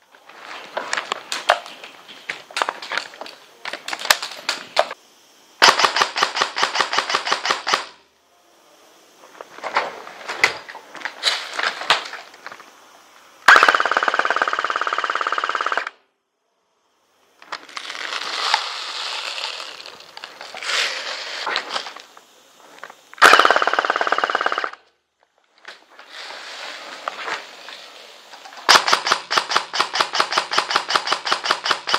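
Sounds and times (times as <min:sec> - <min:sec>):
airsoft gun firing bursts: 0:05.6 - 0:08.0, 0:13.5 - 0:15.9, 0:23.2 - 0:24.8, 0:28.7 - 0:31.9.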